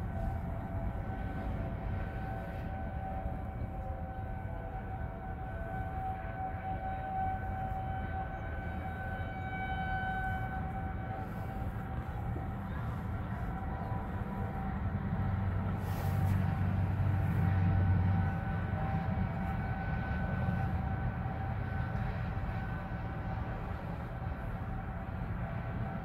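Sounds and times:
low rumble: 0:00.0 - 0:06.2, 0:07.4 - 0:26.0
tornado warning sirens: 0:00.0 - 0:26.0.

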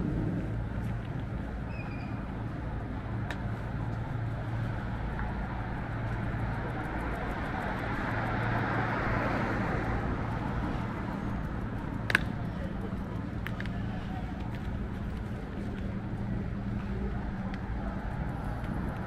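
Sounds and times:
street traffic hum: 0:00.0 - 0:19.0
vehicle passing close: 0:05.5 - 0:14.2.

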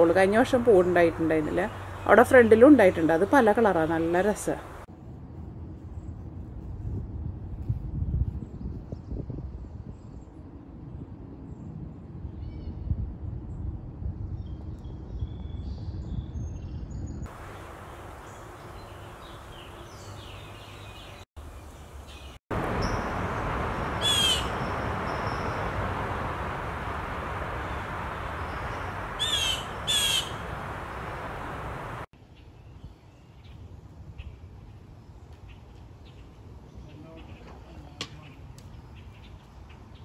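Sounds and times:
steady hiss: 0:17.3 - 0:20.7, 0:21.5 - 0:32.1
blue jay harsh calls: 0:22.1 - 0:25.6, 0:27.6 - 0:30.7.

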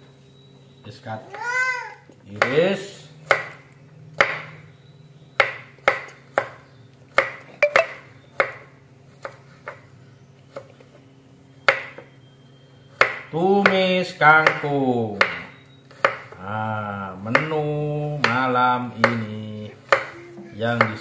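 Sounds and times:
knife chopping on wooden board: 0:02.4 - 0:03.6, 0:04.2 - 0:04.6, 0:05.4 - 0:09.8, 0:11.7 - 0:12.0, 0:13.0 - 0:16.4, 0:17.2 - 0:21.0.

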